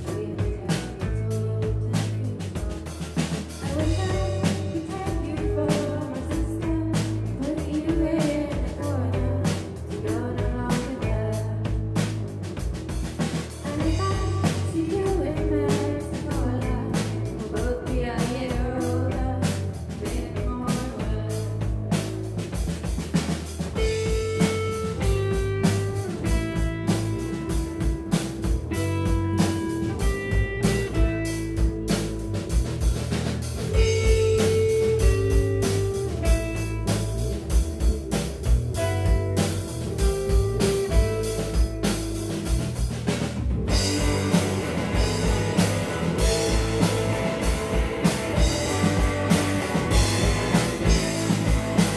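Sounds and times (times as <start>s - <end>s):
live rock band playing: 0.0s - 51.9s
person singing: 3.6s - 11.7s, 13.6s - 21.6s.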